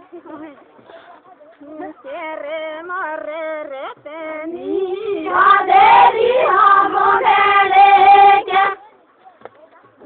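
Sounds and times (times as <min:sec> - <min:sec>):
girls singing unaccompanied: 0:01.9 - 0:08.8.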